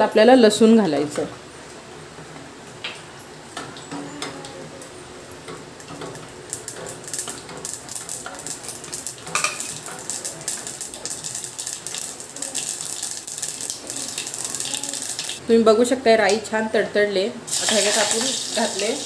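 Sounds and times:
mustard seeds popping in hot oil: 5.4s - 15.4s.

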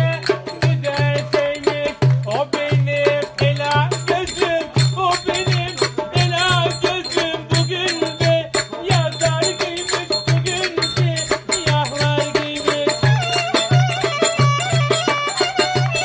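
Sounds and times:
brisk high percussion: 0.0s - 16.0s
steady drum beat: 0.0s - 16.0s
folk dance melody: 12.8s - 16.0s.

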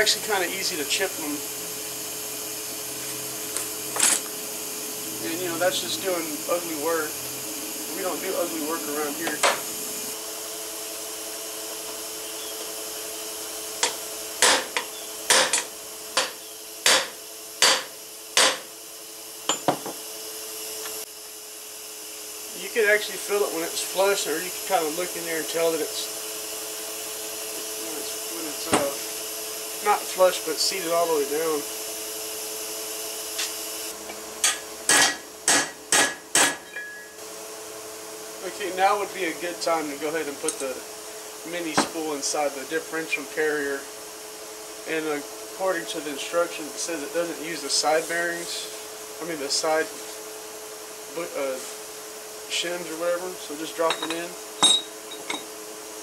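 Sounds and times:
steady hum: 0.0s - 56.0s
hammer striking metal driver: 13.8s - 18.6s, 34.4s - 37.0s, 53.9s - 55.5s.

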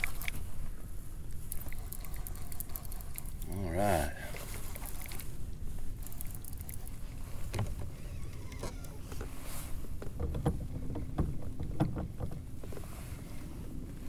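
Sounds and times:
wind and water rumble: 0.0s - 14.0s
knocks and bumps on a kayak: 8.6s - 14.0s.

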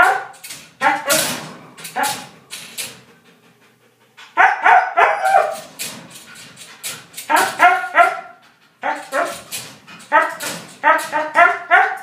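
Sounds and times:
dog barking: 0.0s - 1.2s, 4.4s - 5.6s, 7.3s - 9.4s, 10.1s - 12.0s.

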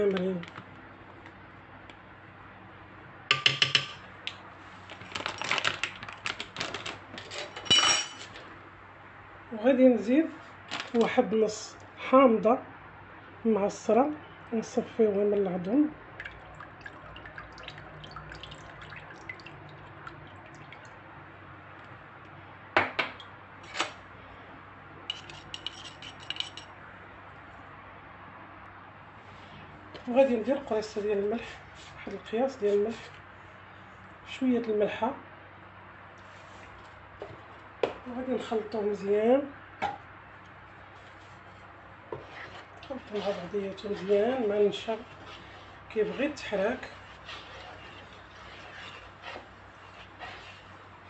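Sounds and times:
metal spoon tapping a pot: 3.3s - 4.0s.

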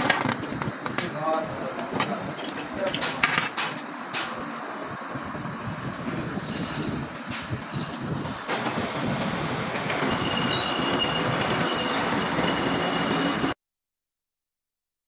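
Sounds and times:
high cutting tool squeal: 6.3s - 7.0s, 9.8s - 13.6s
lathe cutting metal: 8.4s - 13.6s.

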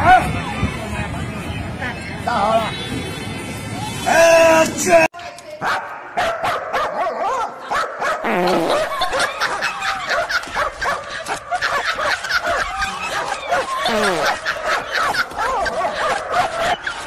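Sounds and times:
dog barking and yipping: 5.6s - 8.2s, 9.1s - 17.0s.

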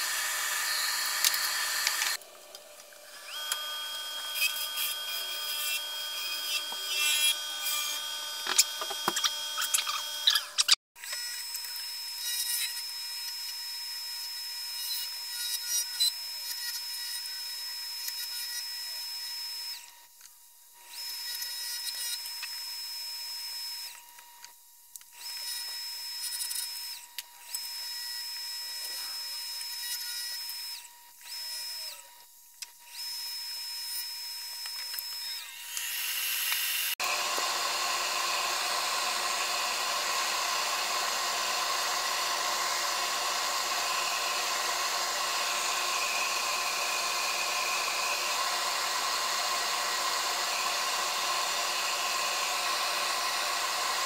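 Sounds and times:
turning tool scratching wood: 0.0s - 2.2s, 3.1s - 10.8s, 34.6s - 54.0s
wood lathe whine: 0.0s - 19.9s, 32.9s - 54.0s.

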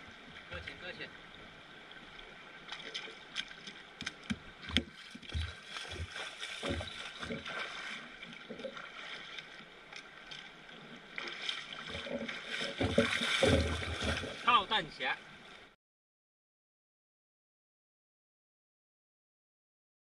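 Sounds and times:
close knocks and thumps: 4.0s - 7.5s, 11.9s - 14.4s.

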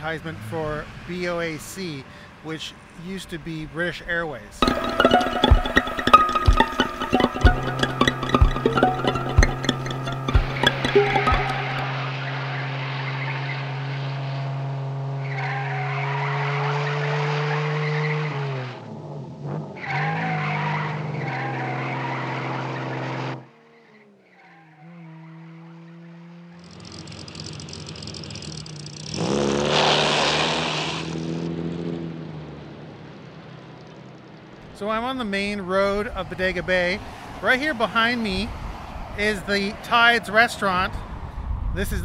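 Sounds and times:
road noise: 0.0s - 42.0s
car engine under load: 4.6s - 34.8s.

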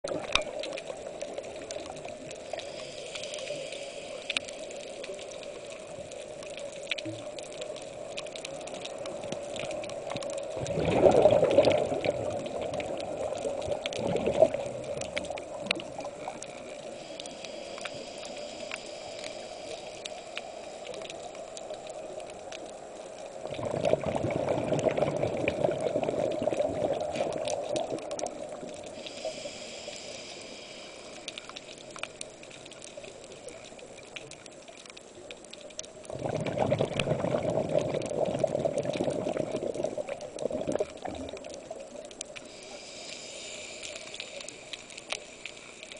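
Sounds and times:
diver's exhaled bubbles gurgling: 0.0s - 2.9s, 5.1s - 16.8s, 23.4s - 29.0s, 35.9s - 42.2s
faint scattered clicking: 0.1s - 23.7s, 24.8s - 36.1s, 37.8s - 45.9s.

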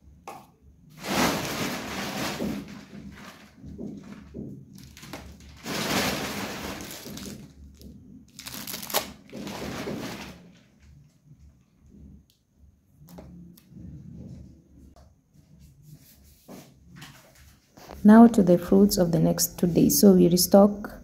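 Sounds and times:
plastic packaging crinkling: 1.0s - 10.7s.

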